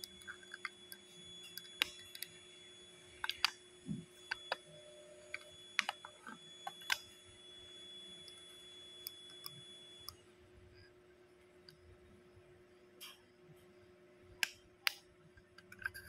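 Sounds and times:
high whine: 0:00.0 - 0:10.9.

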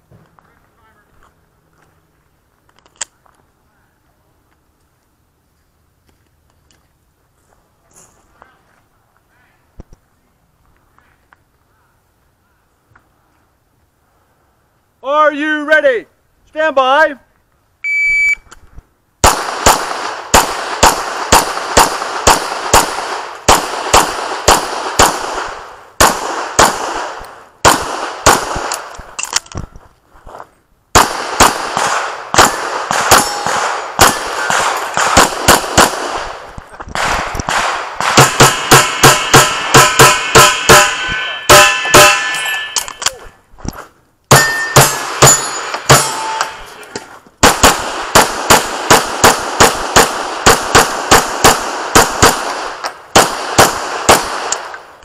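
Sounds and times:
shot timer beep: 0:17.8 - 0:18.4
handgun shots: 0:31.0 - 0:36.2, 0:37.0 - 0:43.1.

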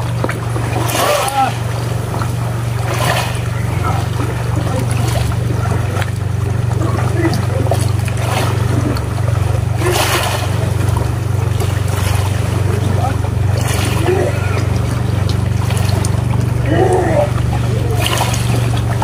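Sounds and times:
boat engine droning: 0:00.0 - 0:19.0
water noise from hull: 0:00.0 - 0:19.0.

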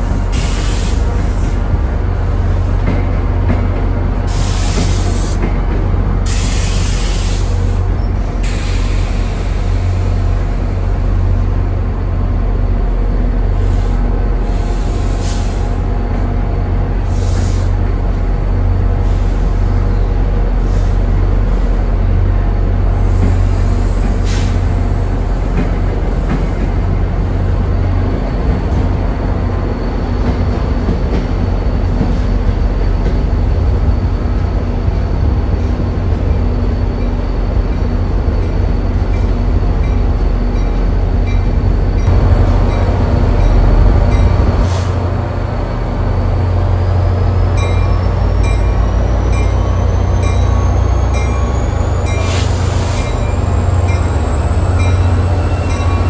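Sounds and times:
train cars rumbling past: 0:00.0 - 0:56.0
high-pitched wheel squeals: 0:47.7 - 0:56.0.

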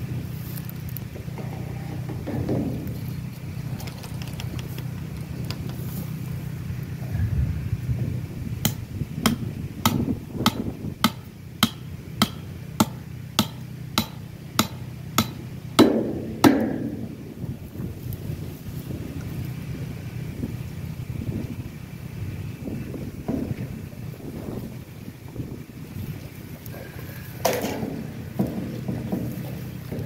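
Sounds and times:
stone tapping metal pipe: 0:08.7 - 0:17.0.

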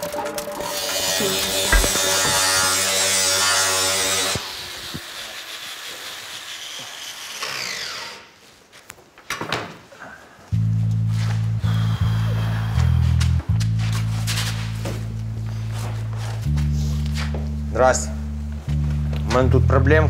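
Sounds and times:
angle grinder whining: 0:00.6 - 0:08.3
sharp knocks: 0:01.6 - 0:02.7.

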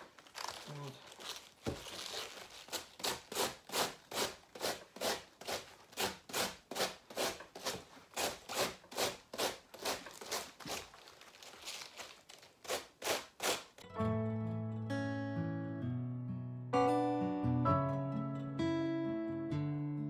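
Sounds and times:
cabbage shredder rasping: 0:01.7 - 0:11.3, 0:12.6 - 0:13.8.

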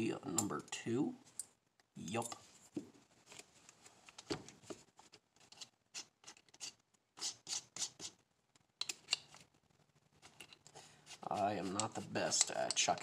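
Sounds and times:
screwdriver bit clicks and rasps: 0:08.8 - 0:09.4.

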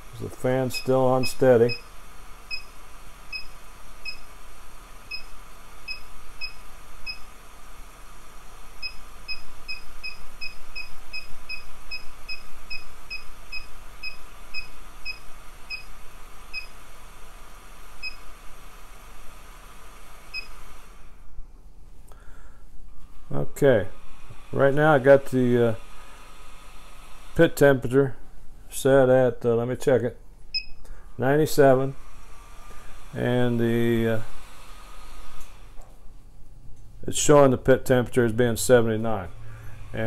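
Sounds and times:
blower fan humming: 0:00.0 - 0:40.0
short high beeps: 0:30.6 - 0:30.8.

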